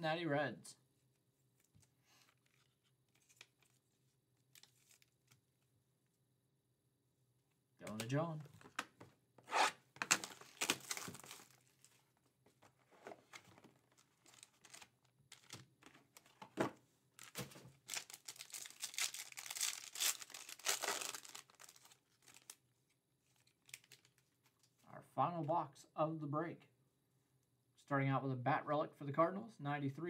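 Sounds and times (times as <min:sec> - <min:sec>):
foil wrapper crinkling and tearing: 0:10.0 - 0:12.0, 0:13.9 - 0:15.6, 0:17.2 - 0:22.6, 0:23.4 - 0:24.3.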